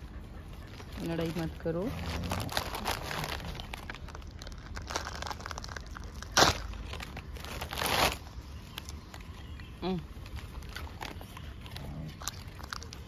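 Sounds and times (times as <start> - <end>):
rustling and crinkling: 0.0 - 13.0
loud crackle: 2.4 - 8.2.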